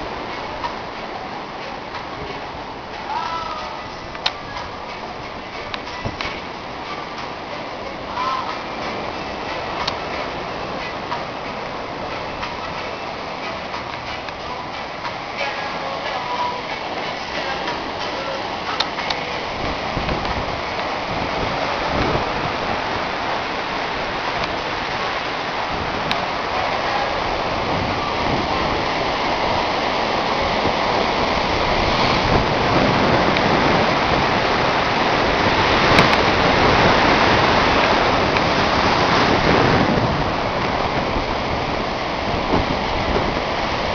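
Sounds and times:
surf breaking on sandy shore: 0:00.0 - 0:43.9.

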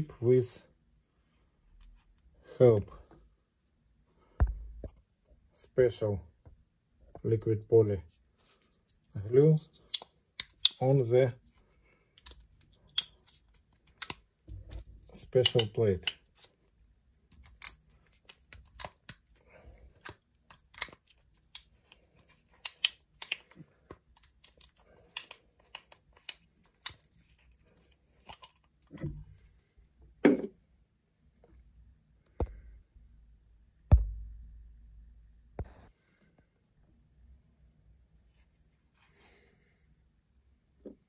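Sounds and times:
small parts and tools clicking: 0:09.7 - 0:10.9, 0:12.1 - 0:16.5, 0:17.3 - 0:29.5.

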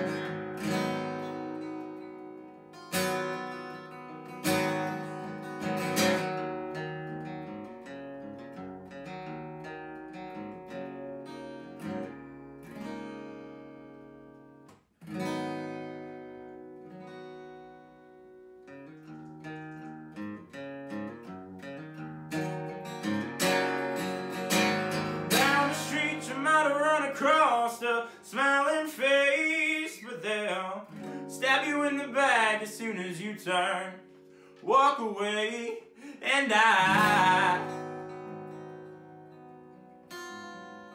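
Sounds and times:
acoustic guitar playing: 0:00.0 - 0:40.9
man singing: 0:25.3 - 0:38.1.

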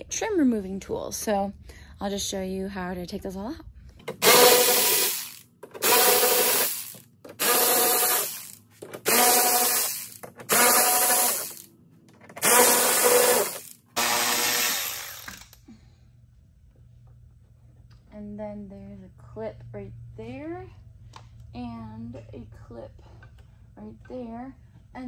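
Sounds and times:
cordless drill motor whine: 0:04.2 - 0:11.6, 0:12.4 - 0:15.6.

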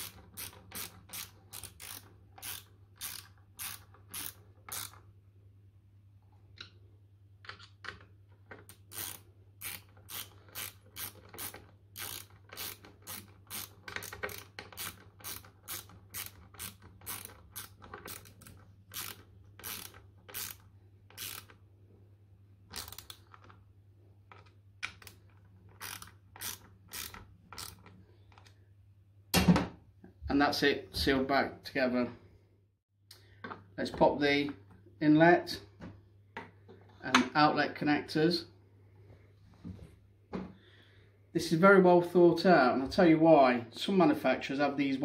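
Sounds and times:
hand ratchet clicking: 0:00.0 - 0:05.0, 0:08.6 - 0:21.6, 0:22.7 - 0:23.5, 0:24.3 - 0:28.5.

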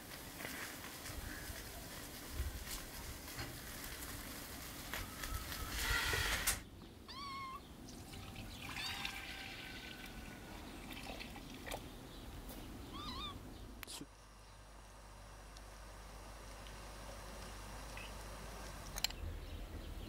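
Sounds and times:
noisy rustle: 0:00.0 - 0:06.8
cat meowing: 0:07.1 - 0:07.6, 0:12.9 - 0:13.4.

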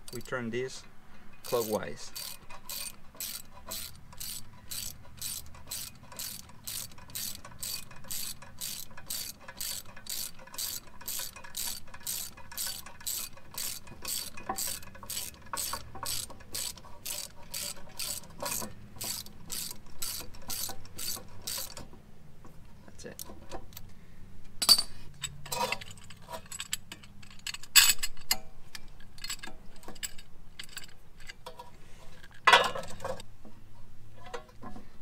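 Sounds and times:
ratchet clicking: 0:01.4 - 0:21.9.

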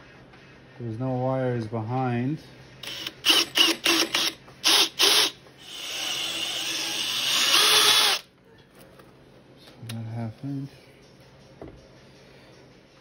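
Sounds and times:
cordless drill cutting through plastic: 0:02.8 - 0:08.2.

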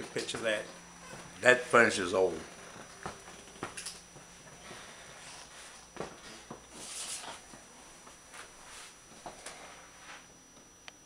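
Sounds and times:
faint steady high tone: 0:00.0 - 0:11.0
soft rustle: 0:06.7 - 0:10.3.

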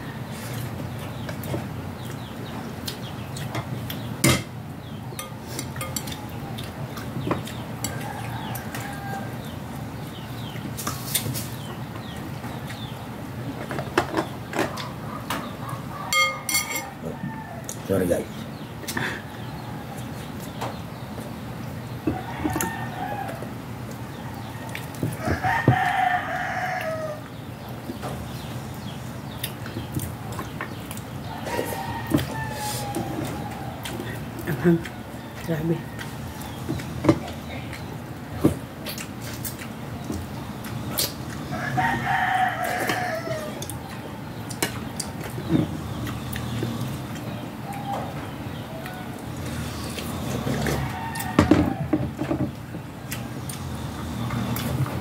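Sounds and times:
cutlery clinking on glass bowl: 0:05.2 - 0:06.2, 0:16.1 - 0:16.9
rooster crowing: 0:07.8 - 0:09.5, 0:15.9 - 0:17.8, 0:22.0 - 0:23.5, 0:24.2 - 0:27.3, 0:31.3 - 0:33.9, 0:41.5 - 0:43.7, 0:50.3 - 0:52.2.

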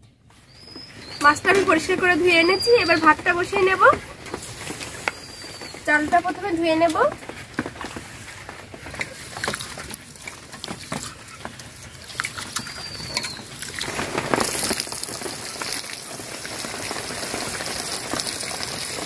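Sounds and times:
water pouring onto soil: 0:13.4 - 0:19.0.

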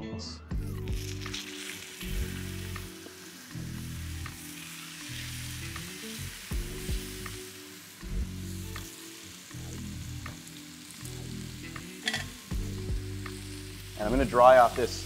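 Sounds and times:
steaks sizzling in hot pan: 0:00.6 - 0:15.0
metal tongs clicking: 0:12.0 - 0:12.3.

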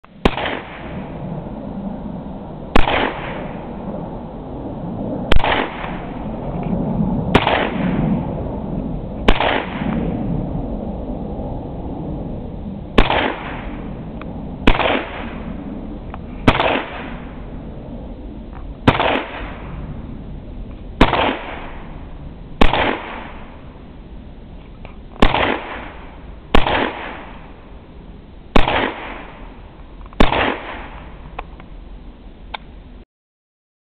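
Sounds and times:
rifle gunshots with echo: 0:00.2 - 0:01.2, 0:02.7 - 0:03.9, 0:05.3 - 0:06.5, 0:07.2 - 0:08.6, 0:09.2 - 0:10.2, 0:13.0 - 0:14.0, 0:14.6 - 0:17.6, 0:18.8 - 0:19.8, 0:21.0 - 0:23.6, 0:25.2 - 0:27.6, 0:28.6 - 0:29.5, 0:30.2 - 0:31.2.

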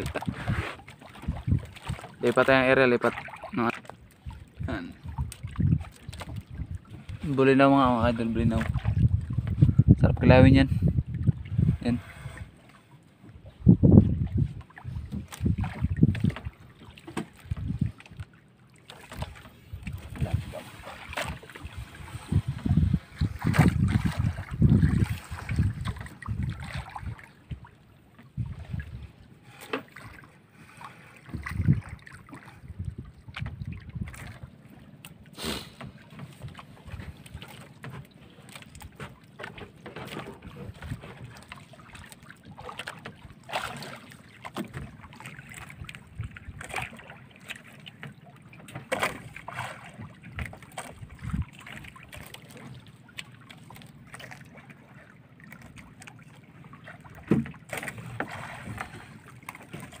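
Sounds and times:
knocks against boat hull: 0:57.2 - 0:57.6.

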